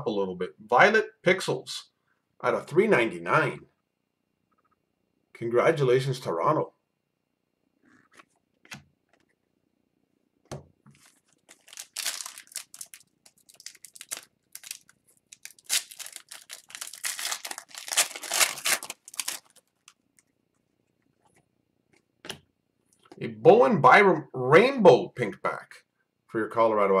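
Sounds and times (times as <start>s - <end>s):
foil wrapper tearing and crinkling: 11.0s - 20.0s.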